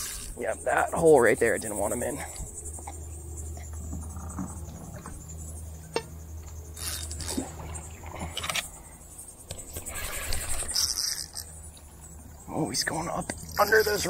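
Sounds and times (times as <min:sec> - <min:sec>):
high insect buzz: 0:00.0 - 0:14.0
low hum: 0:00.0 - 0:14.0
fishing tackle clicking and rattling: 0:05.9 - 0:07.4, 0:09.5 - 0:12.1, 0:13.1 - 0:14.0.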